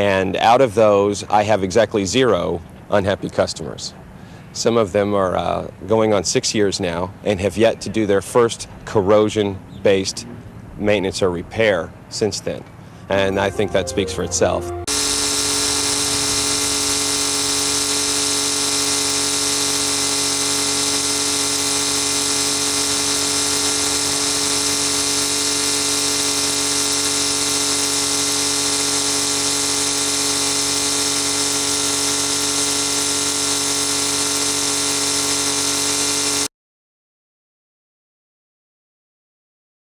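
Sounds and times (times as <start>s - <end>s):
water jetting under hose pressure: 14.9s - 36.5s.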